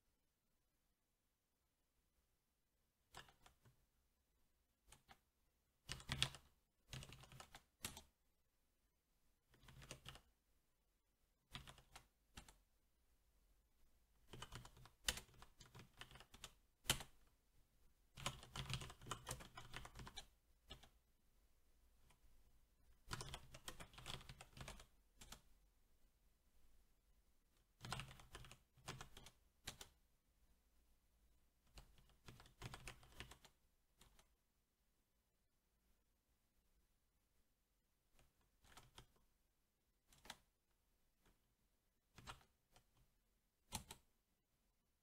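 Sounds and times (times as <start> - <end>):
mechanical keyboard typing: 3.1 - 3.7, 5.8 - 8.1, 9.6 - 10.3, 11.5 - 12.6, 14.3 - 17.2, 18.2 - 21.0, 23.0 - 25.4, 27.8 - 30.0, 31.7 - 34.2, 40.1 - 40.4, 42.2 - 43.0, 43.7 - 44.1.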